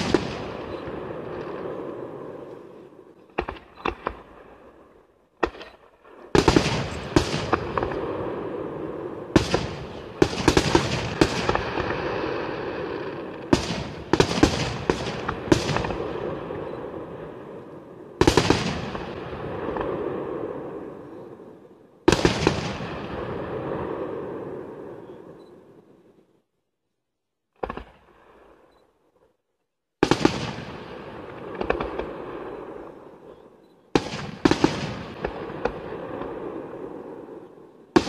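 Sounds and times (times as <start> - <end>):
firework shells booming: 6.3 - 8.4, 9.4 - 16.6, 30.0 - 32.8.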